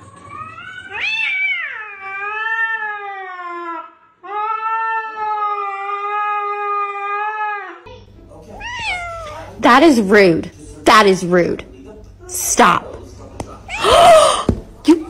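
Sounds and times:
cat yowling: 0.2 - 7.8, 8.6 - 9.4.

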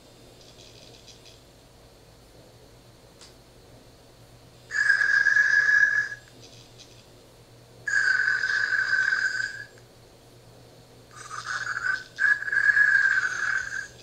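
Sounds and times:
toy robot electronic snoring: 4.7 - 6.2, 7.9 - 9.7, 11.1 - 14.0.

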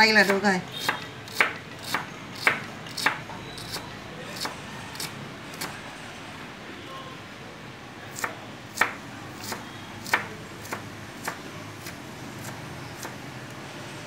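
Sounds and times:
knife chopping on wooden board: 0.2 - 5.8, 8.2 - 13.2.

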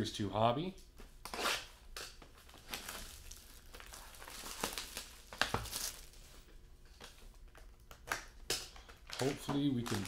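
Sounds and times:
plastic shrink-wrap crinkling: 2.4 - 6.4, 7.0 - 10.0.

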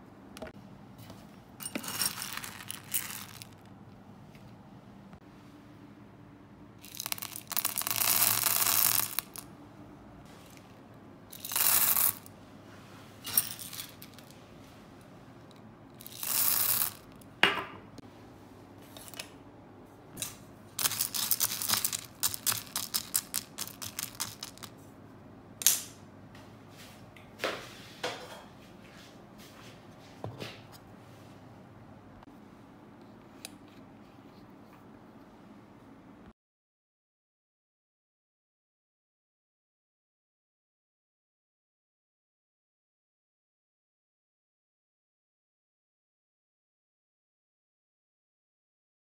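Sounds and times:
beads clicking: 1.6 - 3.6, 6.8 - 9.5, 11.3 - 12.3, 16.0 - 17.2, 20.8 - 24.7
wax beads rattling into metal pot: 1.6 - 3.6, 6.8 - 9.4, 11.3 - 12.3, 13.3 - 14.3, 16.0 - 17.2, 20.8 - 24.7.

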